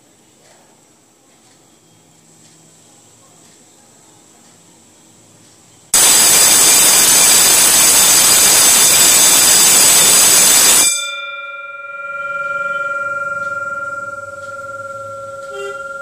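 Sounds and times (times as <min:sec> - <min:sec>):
electric bell ringing: 0:06.0 - 0:16.0
gong humming tones: 0:06.0 - 0:16.0.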